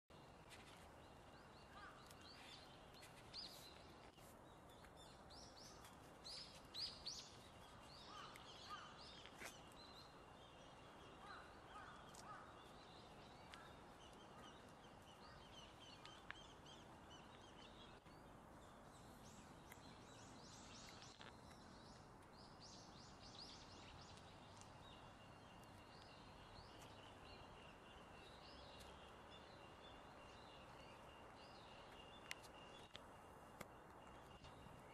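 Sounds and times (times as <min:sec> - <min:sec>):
small birds chirping: 0:00.1 - 0:34.9.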